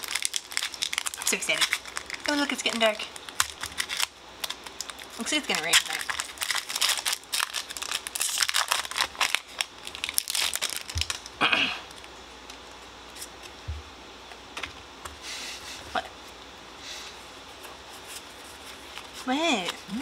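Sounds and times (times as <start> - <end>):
foil wrapper crinkling and tearing: 0.0 - 13.3.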